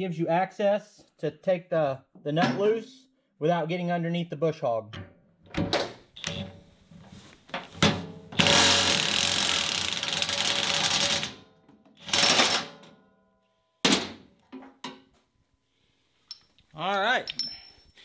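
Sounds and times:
impact wrench hammering: 8.4 - 11.4
light metal clinks: 17.3 - 18.0.

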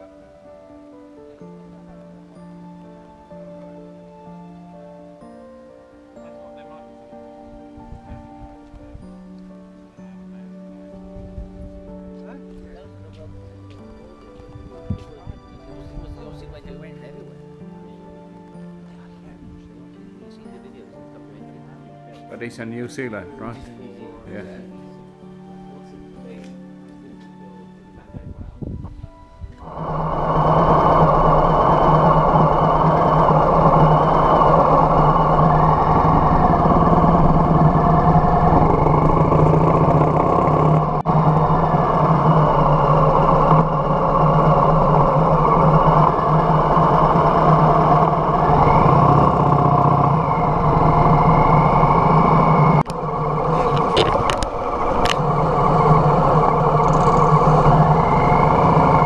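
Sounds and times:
wind rushing past microphone: 7.5 - 9.3, 11.0 - 17.0, 27.9 - 59.0
motorcycle engine running: 29.6 - 59.0.

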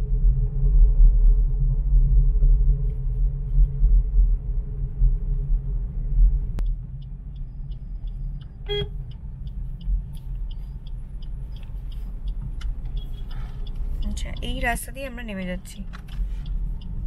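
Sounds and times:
car driving rumble: 0.0 - 17.0
faint regular ticking: 6.6 - 17.0
car horn toot: 8.6 - 9.0.

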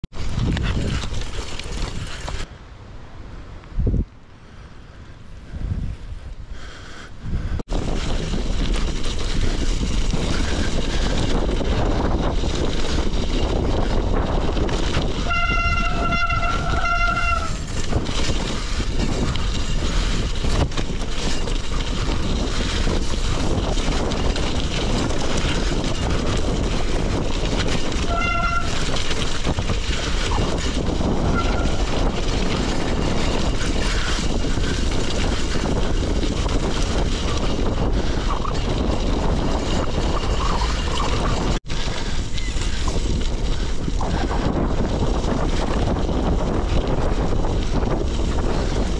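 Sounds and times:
bike rattling: 0.1 - 2.5, 5.0 - 48.9
tyres crunching on gravel: 0.1 - 2.5, 7.7 - 48.9
wind rush on microphone: 0.1 - 2.5, 3.6 - 48.9
brakes squealing: 7.7 - 48.9.

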